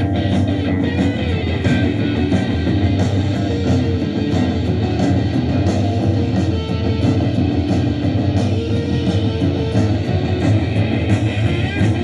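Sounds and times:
rock band playing: 0:00.0 - 0:12.0.

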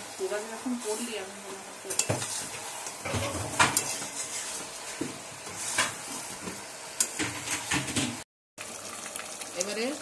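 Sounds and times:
frying sizzle: 0:00.0 - 0:10.0
metal spatula scraping wok: 0:00.6 - 0:06.4.

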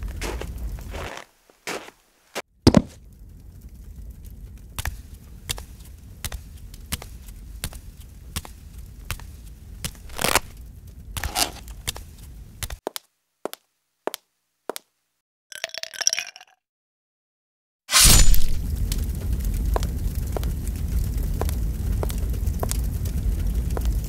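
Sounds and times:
fire crackling: 0:00.0 - 0:13.6, 0:17.9 - 0:24.0
low rumble: 0:18.4 - 0:24.0.

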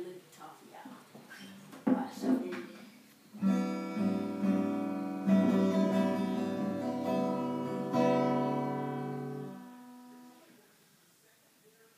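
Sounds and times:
acoustic guitar chords strummed: 0:03.4 - 0:10.5.

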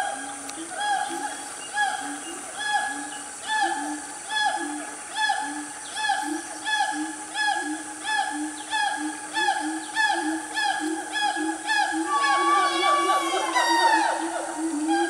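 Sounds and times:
siamangs whooping: 0:10.6 - 0:15.0.

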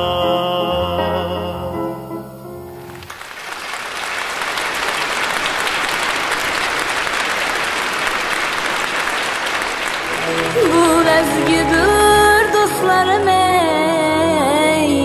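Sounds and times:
audience applauding: 0:02.9 - 0:13.5
held music chord: 0:10.0 - 0:15.0.

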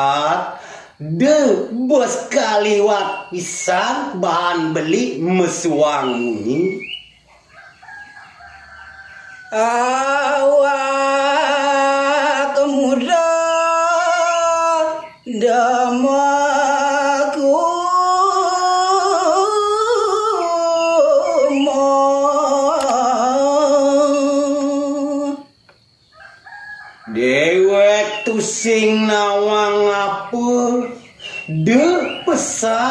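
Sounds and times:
man singing solo: 0:09.5 - 0:25.5, 0:27.1 - 0:32.9.

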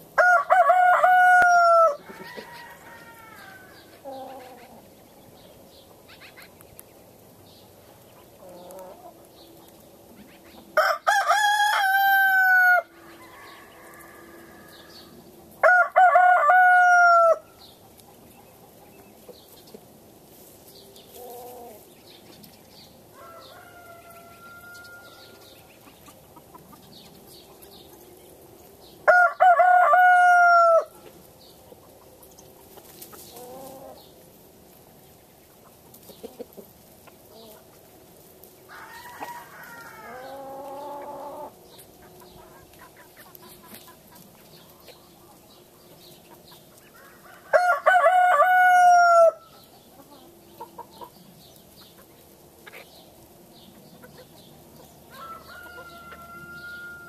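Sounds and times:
roosters crowing: 0:00.0 - 0:05.4, 0:10.0 - 0:17.8, 0:22.8 - 0:27.9, 0:28.8 - 0:32.0, 0:38.4 - 0:43.9, 0:44.6 - 0:51.4, 0:53.8 - 0:57.0
chickens clucking: 0:00.0 - 0:57.0.

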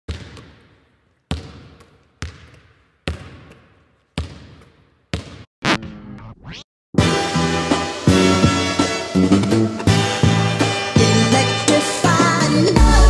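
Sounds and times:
basketball bouncing on gym floor: 0:00.1 - 0:05.5.

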